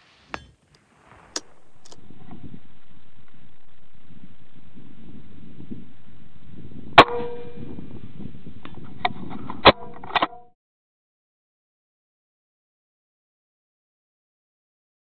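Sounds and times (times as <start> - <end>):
wind rumble on microphone: 0.6 - 10.5.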